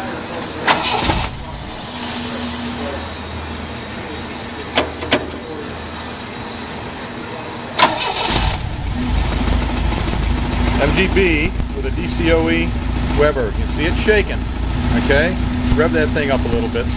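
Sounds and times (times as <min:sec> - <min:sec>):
car engine idling roughly: 0:00.7 - 0:02.8, 0:07.8 - 0:16.9.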